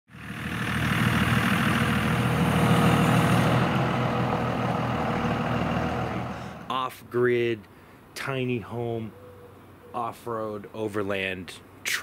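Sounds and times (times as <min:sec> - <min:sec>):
truck engine running low: 0:00.1 - 0:06.7
tyre and road noise: 0:00.1 - 0:06.8.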